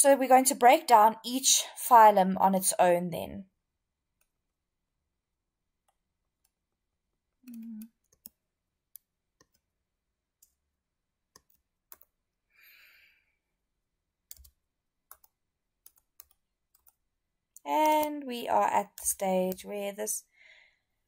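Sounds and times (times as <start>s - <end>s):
computer mouse clicking: 7.5s - 9.7s, 11.3s - 12.1s, 14.3s - 17.0s, 17.6s - 18.1s, 18.8s - 19.6s.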